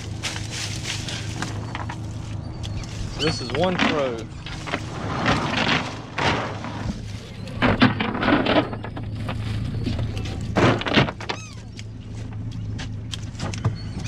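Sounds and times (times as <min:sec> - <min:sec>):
idling boat motor hum: 0:00.0 - 0:14.0
net thudding and clattering on deck: 0:03.6 - 0:09.4.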